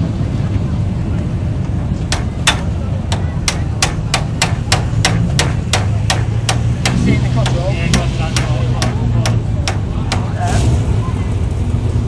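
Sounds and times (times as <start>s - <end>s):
low steady hum: 1.9s - 10.4s
hammer striking metal: 2.1s - 10.5s.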